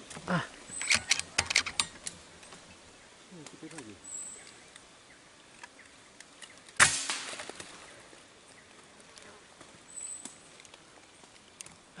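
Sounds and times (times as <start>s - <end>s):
air rifle shot: 6.8s - 7.5s.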